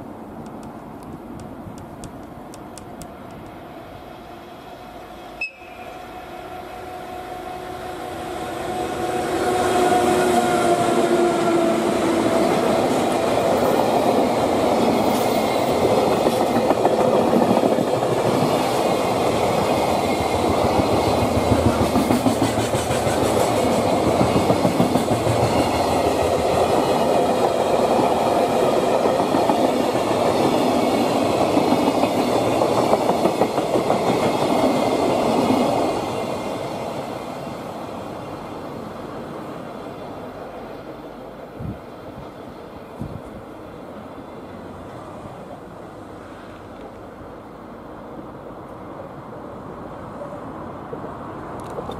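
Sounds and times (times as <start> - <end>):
freight train rumbling past: 0.0 - 51.9.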